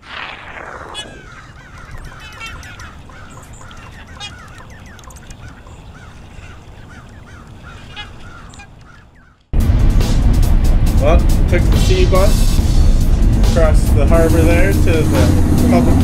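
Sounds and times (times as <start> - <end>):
flock of birds honking: 0.9 - 9.5.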